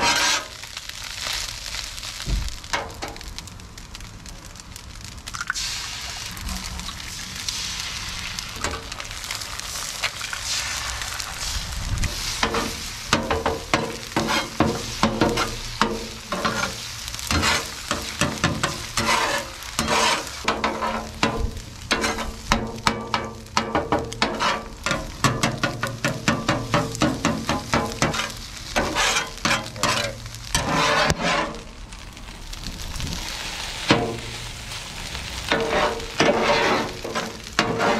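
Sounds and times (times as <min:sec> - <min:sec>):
metal spatula chopping and scraping: 0:00.0 - 0:00.6, 0:12.2 - 0:31.7, 0:35.4 - 0:37.9
eggs sizzling on a griddle: 0:00.0 - 0:37.9.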